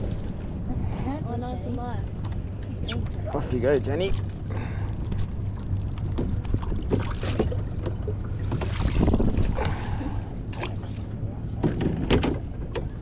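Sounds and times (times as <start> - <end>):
steady low drone: 0.0 - 13.0
wind on microphone: 8.7 - 9.8
knocks and clatter: 11.6 - 13.0.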